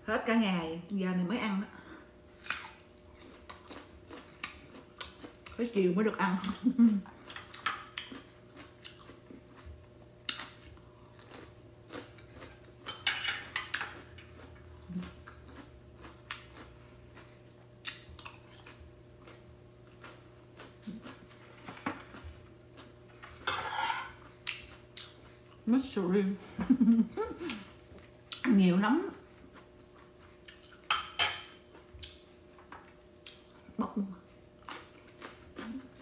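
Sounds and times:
person chewing sticky rice: 0:02.4 - 0:05.6, 0:07.1 - 0:23.5, 0:24.1 - 0:25.6, 0:29.2 - 0:30.9, 0:31.7 - 0:33.6, 0:34.5 - 0:36.0.

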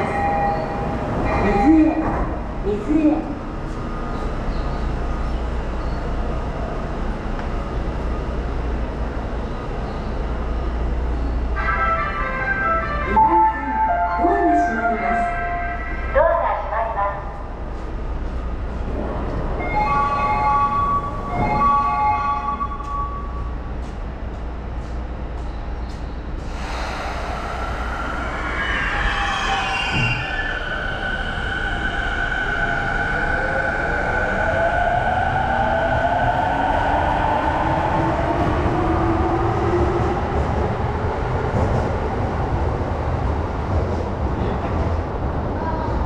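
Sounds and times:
subway train hum and rumble: 0:00.0 - 0:46.0
train whining rush: 0:26.2 - 0:46.0.

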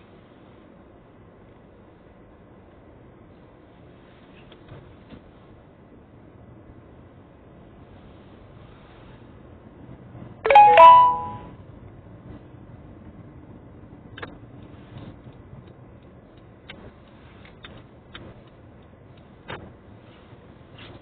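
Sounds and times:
two-note chime: 0:10.5 - 0:11.5.

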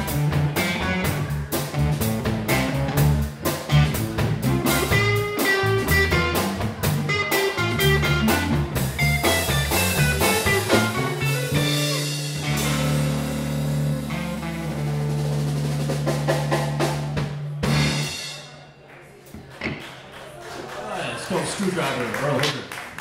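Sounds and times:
electric guitar: 0:00.0 - 0:18.2
electric bass: 0:00.0 - 0:18.4
drum kit: 0:00.0 - 0:18.7.

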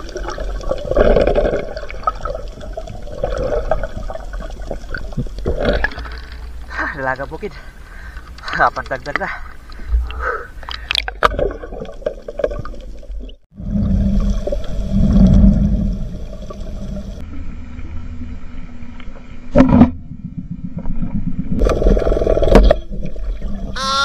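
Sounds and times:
water churning and bubbling: 0:00.0 - 0:24.0
muffled underwater rumble: 0:12.4 - 0:23.8.

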